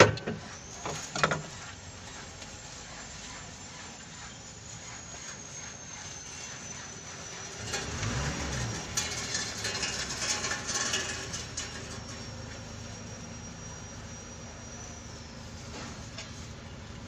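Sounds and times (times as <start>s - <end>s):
rubbing and handling noises: 0.0s - 12.2s.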